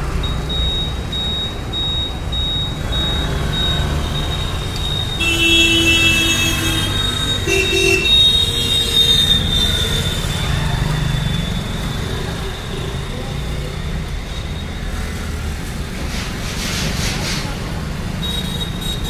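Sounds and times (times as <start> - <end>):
road traffic rumbling: 0.0 - 19.0
vehicle horns honking: 4.8 - 10.4, 18.2 - 19.0.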